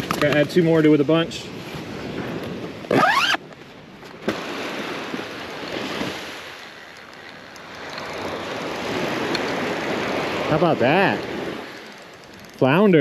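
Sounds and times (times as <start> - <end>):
zipper pulled shut: 2.9 - 3.4
surf washing onto beach: 4.2 - 6.7, 7.5 - 13.0.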